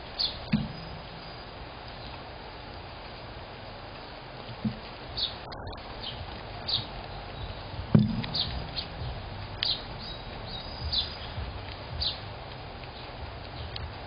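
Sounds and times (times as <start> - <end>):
squirrel crunching seeds: 5.0 - 14.0
loud bump: 7.8 - 9.4.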